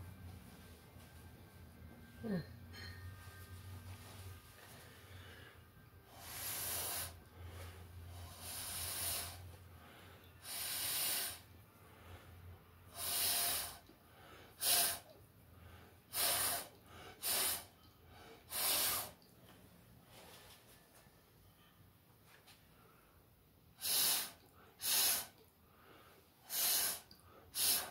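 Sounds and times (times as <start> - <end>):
hissing puffs of blown air: 6.1 - 7.2, 8.2 - 9.5, 10.4 - 11.5, 12.9 - 13.8, 14.6 - 15.1, 16.1 - 17.7, 18.4 - 19.2, 23.8 - 25.4, 26.4 - 27.9.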